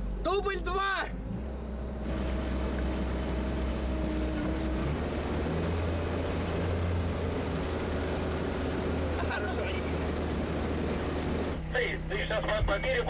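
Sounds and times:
water rushing and splashing: 2.0s - 11.6s.

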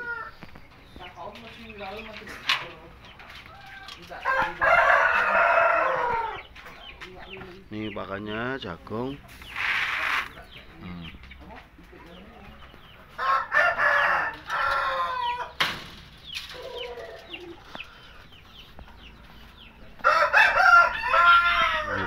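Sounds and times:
rooster crowing: 3.5s - 6.4s, 13.2s - 15.6s, 20.0s - 22.0s.

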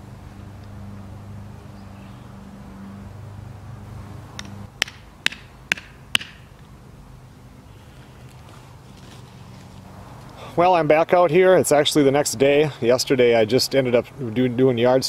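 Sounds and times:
low engine-like hum: 0.0s - 10.6s.

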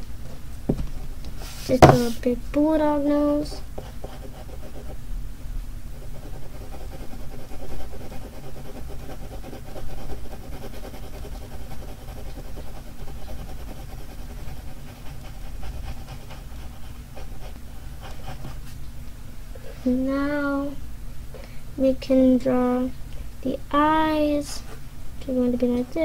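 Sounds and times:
low steady hum: 0.0s - 26.0s
pencil scratching on paper: 3.8s - 5.0s, 6.0s - 18.6s.

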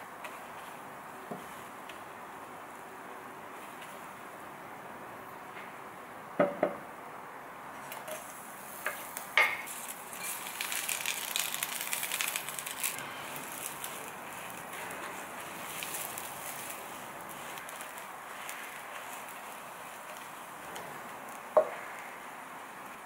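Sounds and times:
sauce sizzling and crackling: 0.2s - 2.8s, 7.8s - 23.0s.

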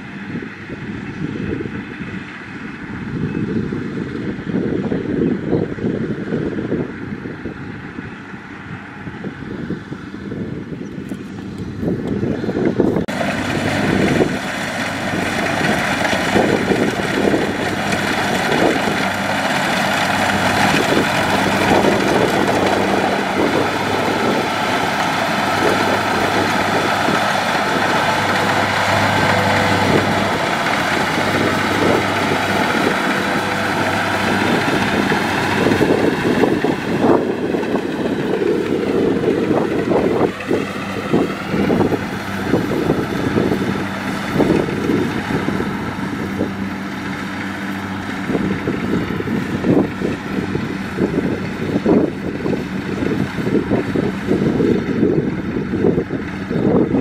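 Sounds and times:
diesel engine running: 0.0s - 57.0s
threshing machinery clatter: 12.8s - 57.0s.

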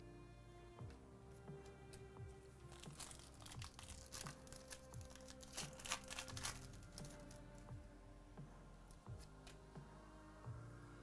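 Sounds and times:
faint background music: 0.0s - 11.0s
plastic wrapper crinkling: 2.6s - 7.6s
cards being handled: 2.6s - 7.7s.

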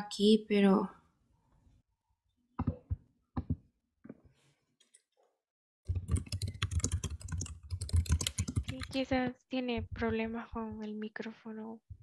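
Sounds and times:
keyboard typing clicks: 5.9s - 9.0s.

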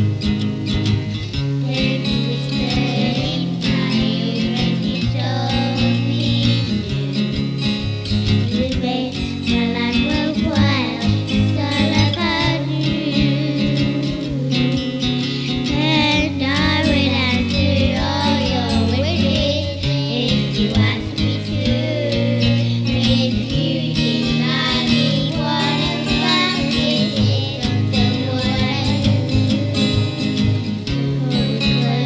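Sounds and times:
acoustic guitar: 0.0s - 32.0s
person singing: 1.6s - 32.0s.

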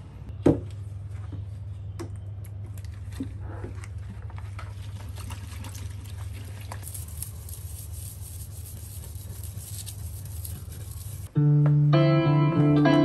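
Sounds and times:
water stirred in plastic bucket: 4.0s - 7.1s.

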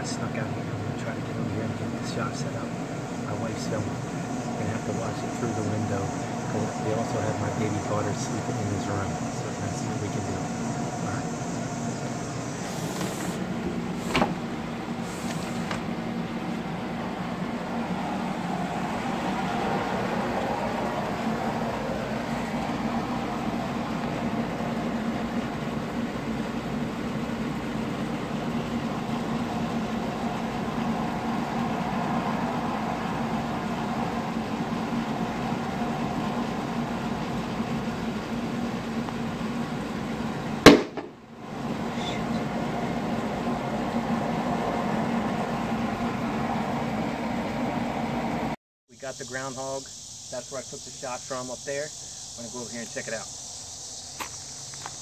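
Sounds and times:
steady low hum: 0.0s - 55.0s
loud rifle shot: 40.6s - 41.2s.

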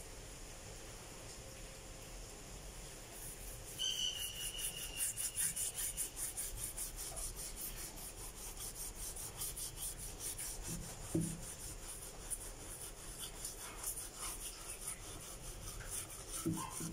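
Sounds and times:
brush scrubbing metal plate: 3.2s - 16.9s
high squeak: 3.8s - 6.0s.

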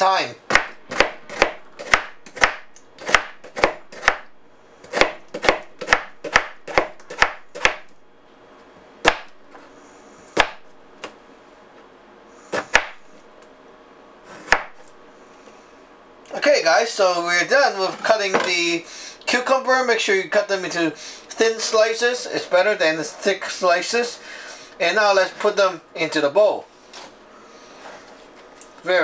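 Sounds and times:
knife chopping on cutting board: 0.5s - 4.3s, 4.9s - 7.9s, 9.0s - 9.4s, 10.4s - 11.1s, 12.5s - 13.1s, 14.3s - 14.9s.

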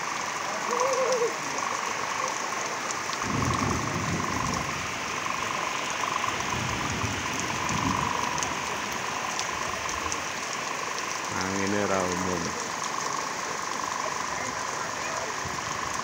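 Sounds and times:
heavy rain pouring: 0.0s - 16.0s
wind rumbling on microphone: 3.2s - 5.6s, 6.3s - 8.7s.

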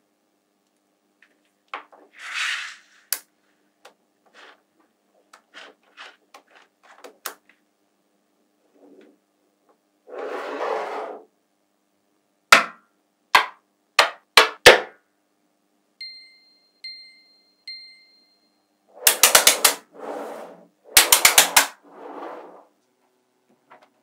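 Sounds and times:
magnet blocks sliding: 2.1s - 3.2s, 18.9s - 22.7s
magnet balls clicking: 19.0s - 19.8s, 20.9s - 21.8s.

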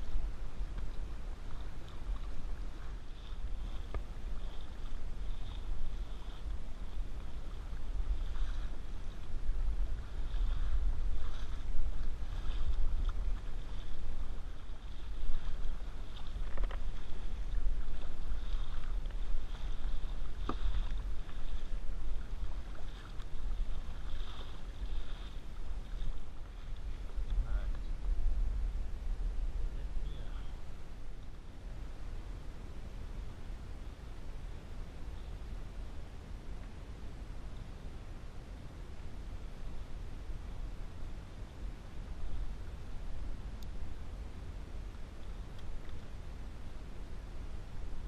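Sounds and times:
paddle splashing in water: 0.0s - 28.3s
wind on microphone: 0.0s - 48.0s.

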